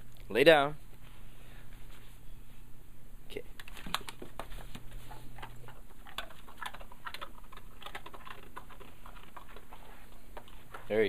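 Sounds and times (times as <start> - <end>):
dog crunching dry treat: 3.6 - 10.8.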